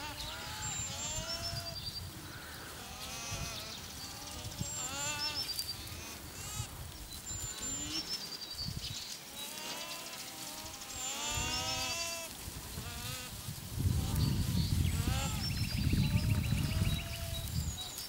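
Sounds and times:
alpacas humming: 0:00.0 - 0:08.3, 0:09.3 - 0:17.6
songbirds whistling: 0:07.0 - 0:12.1.

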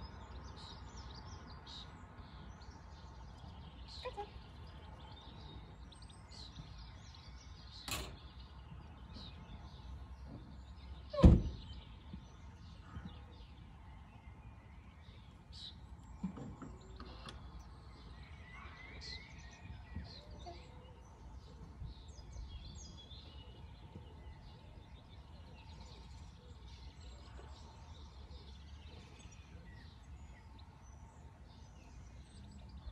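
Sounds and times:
outdoor background noise: 0:00.0 - 0:32.9
small birds chirping: 0:00.0 - 0:32.9
car tailgate slamming: 0:07.9 - 0:08.2, 0:11.2 - 0:11.7.

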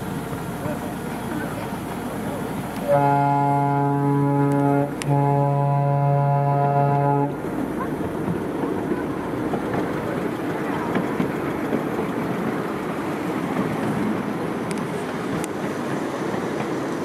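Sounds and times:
ride rumble: 0:00.0 - 0:17.0
locomotive whistle blasts: 0:02.8 - 0:07.4.

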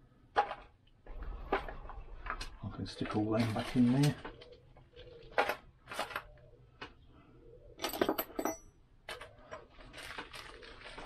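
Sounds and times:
metal tools clinking on workbench: 0:07.8 - 0:08.8.

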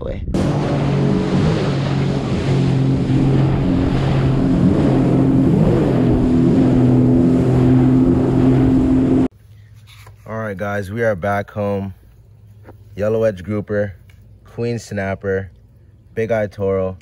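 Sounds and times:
rushing wind and water: 0:00.3 - 0:09.3
watercraft engine drone: 0:00.3 - 0:09.3.

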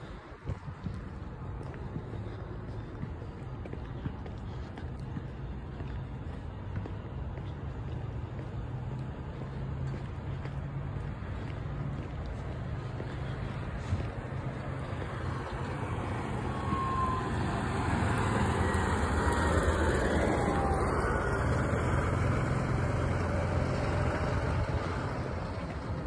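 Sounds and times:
vehicle passing on road: 0:00.0 - 0:26.0.

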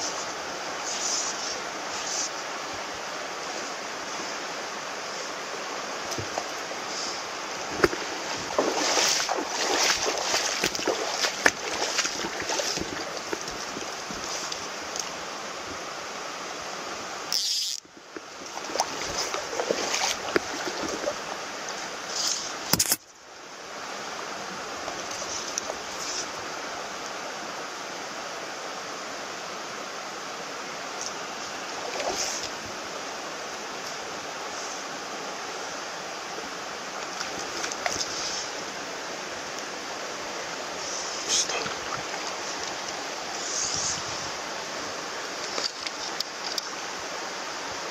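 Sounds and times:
stream running over stones: 0:00.0 - 0:47.9
small clicks and rustles: 0:45.4 - 0:46.8.

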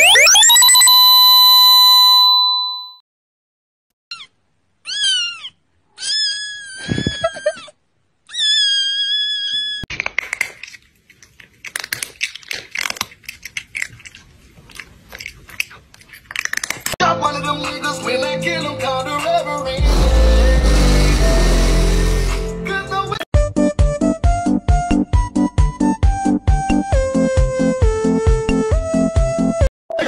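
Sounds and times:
kitten meowing: 0:04.9 - 0:07.7, 0:08.3 - 0:09.8
crunchy chewing: 0:09.9 - 0:17.0.

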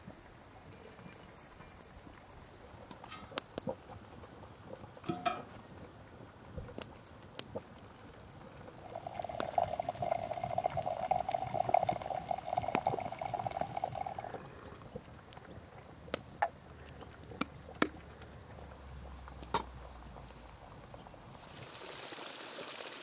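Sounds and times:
hot water pouring from a tap: 0:08.7 - 0:14.8, 0:21.4 - 0:23.0.

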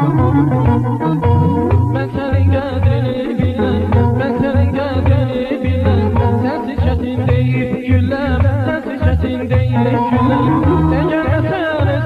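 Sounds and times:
ornamented wavering melody: 0:00.0 - 0:02.8, 0:09.8 - 0:11.7
pulsing bass line: 0:00.0 - 0:12.0.

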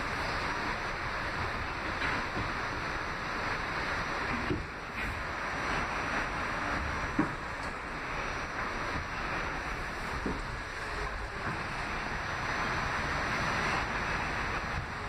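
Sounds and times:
subway wheels rushing on rails: 0:00.0 - 0:15.0.

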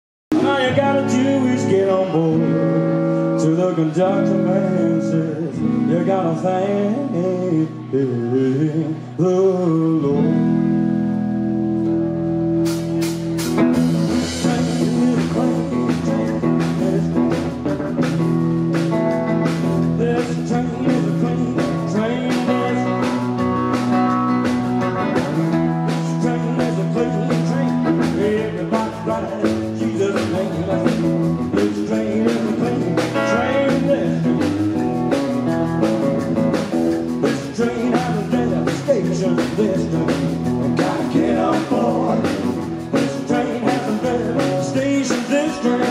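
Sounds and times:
double bass: 0:00.3 - 0:45.9
electric guitar: 0:00.3 - 0:45.9
live rock and roll band: 0:00.3 - 0:45.9
drum kit beat: 0:11.9 - 0:45.9.

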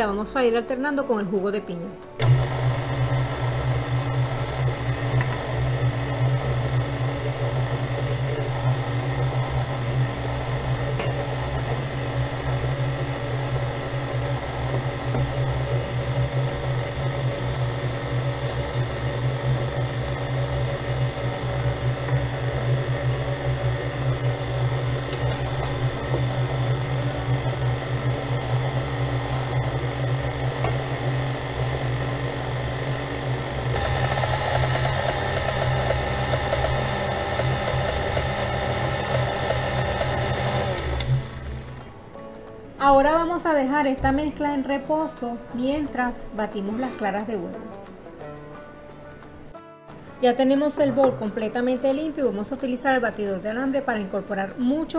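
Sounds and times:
stand mixer motor hum: 0:02.2 - 0:42.0.

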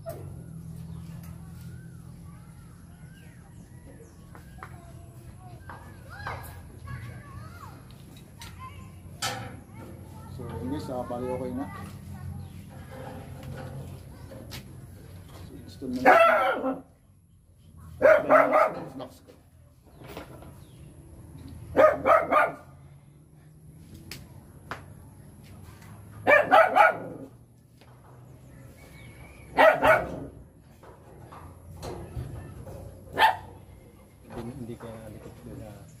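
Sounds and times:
dog barking: 0:16.0 - 0:16.9, 0:18.0 - 0:19.1, 0:21.7 - 0:22.7, 0:26.2 - 0:27.3, 0:29.6 - 0:30.3, 0:33.1 - 0:33.6.

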